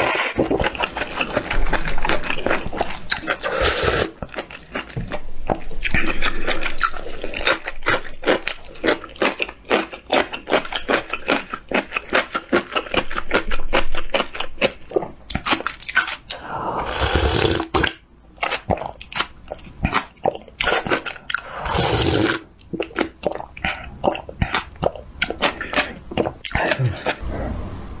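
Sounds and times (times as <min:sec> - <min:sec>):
crunchy chewing: 0:00.4 - 0:16.4, 0:17.0 - 0:27.3
slurping broth: 0:03.0 - 0:04.2, 0:16.3 - 0:17.9, 0:20.6 - 0:22.4.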